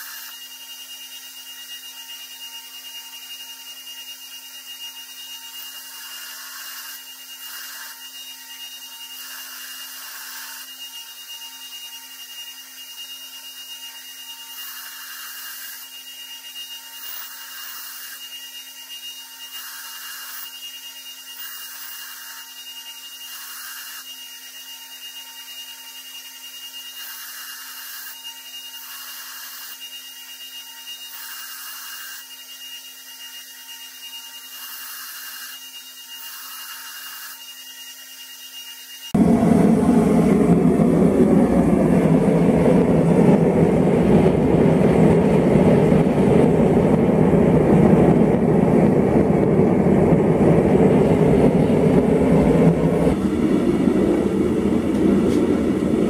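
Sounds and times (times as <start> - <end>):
steel grinding hiss on belt: 0.0 - 39.1
belt grinder humming: 0.0 - 39.5.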